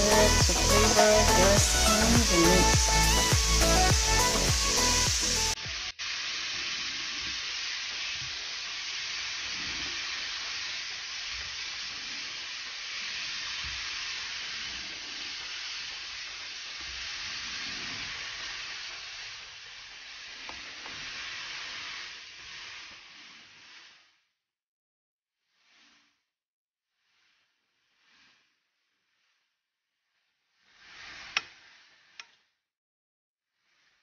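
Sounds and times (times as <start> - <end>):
steak sizzling in hot oil: 0.0 - 24.2.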